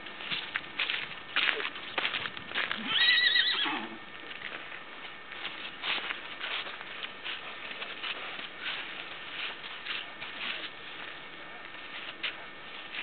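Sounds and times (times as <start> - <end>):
hooves clip-clopping on pavement: 0.0 - 13.0
horse whinnying: 2.8 - 4.0.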